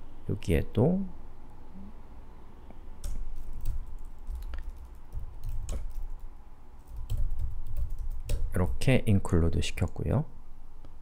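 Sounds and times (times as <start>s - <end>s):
keyboard keystrokes: 3.0s - 6.2s.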